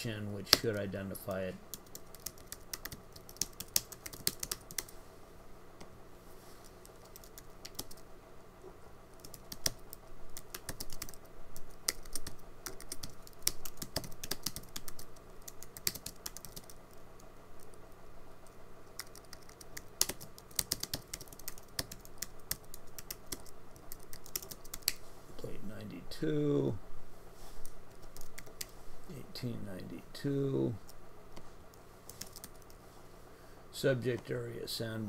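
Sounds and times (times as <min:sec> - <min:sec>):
typing on computer keyboard: 0:01.7 - 0:04.9, 0:06.8 - 0:08.0, 0:09.2 - 0:16.8, 0:19.0 - 0:25.0, 0:32.1 - 0:32.8.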